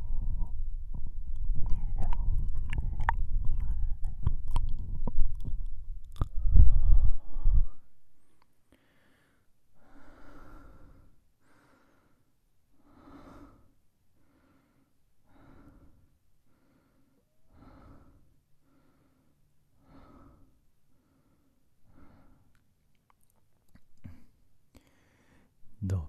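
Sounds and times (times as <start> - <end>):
wet mouth sounds: 1.0 - 6.8
man breathing softly: 6.4 - 22.7, 24.0 - 25.7.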